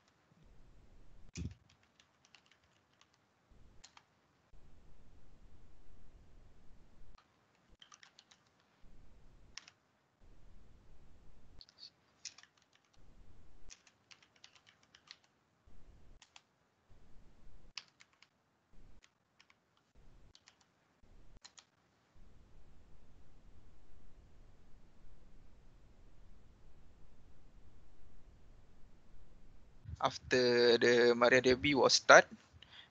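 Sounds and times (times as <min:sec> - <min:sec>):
computer keyboard typing: 0:01.4 - 0:03.2, 0:03.8 - 0:04.1, 0:07.8 - 0:08.8, 0:09.5 - 0:09.8, 0:12.2 - 0:13.0, 0:13.7 - 0:15.4, 0:16.2 - 0:16.5, 0:17.7 - 0:18.4, 0:19.0 - 0:20.7, 0:21.4 - 0:21.8.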